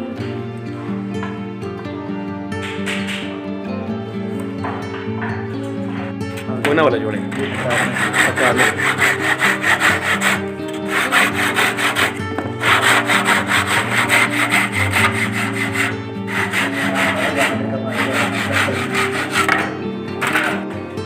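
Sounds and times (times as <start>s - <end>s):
hand saw cutting wood: 7.3s - 20.8s.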